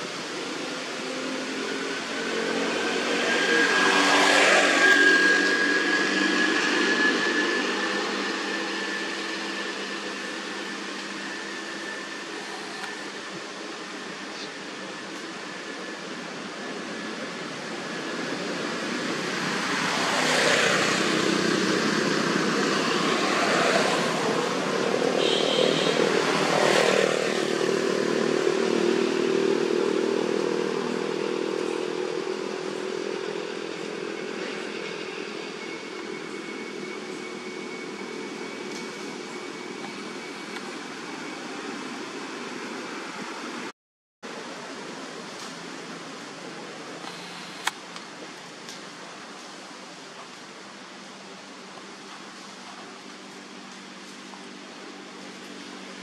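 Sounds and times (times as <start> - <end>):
motor engine passing by: 1.0 - 11.3, 18.2 - 36.7.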